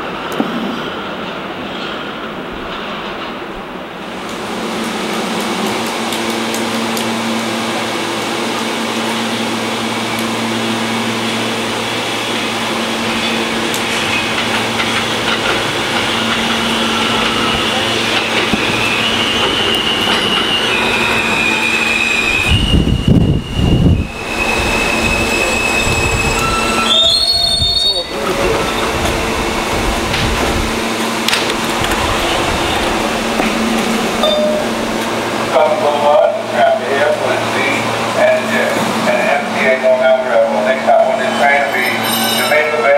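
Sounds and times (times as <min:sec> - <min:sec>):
subway train rumble: 0:00.0 - 0:42.9
wheels squealing and clicking: 0:13.2 - 0:29.2, 0:41.6 - 0:42.6.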